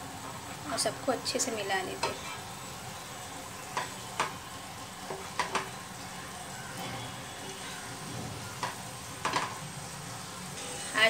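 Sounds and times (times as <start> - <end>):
vegetables sizzling in oil: 0.0 - 11.0
spatula knocking against pan: 5.1 - 5.7, 8.6 - 9.6.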